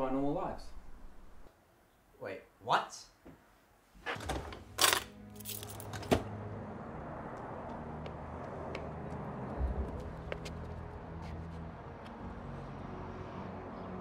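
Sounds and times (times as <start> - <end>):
distant traffic rumble: 5.7 - 13.9
rushing scuffing noises: 8.0 - 12.2.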